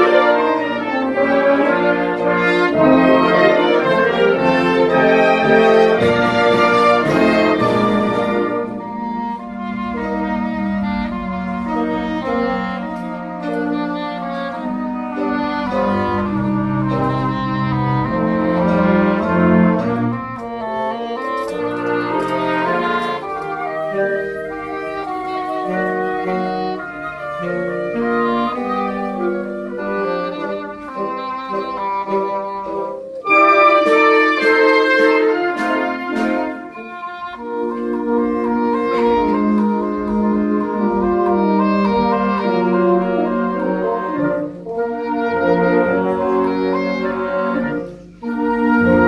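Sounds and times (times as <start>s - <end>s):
wind band playing chords: 0.0s - 49.0s.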